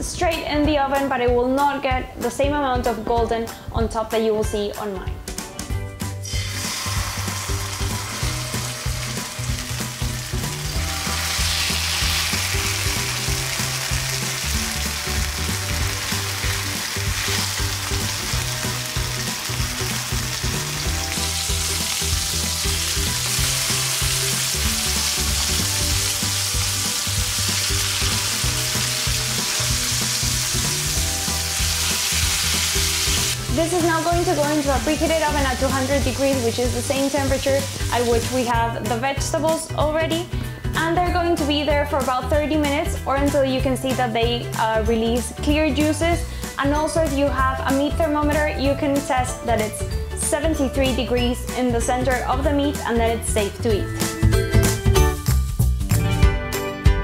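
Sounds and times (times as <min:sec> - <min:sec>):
background music bass line: 0:00.0 - 0:57.0
chicken sizzling in frying pan: 0:06.3 - 0:38.6.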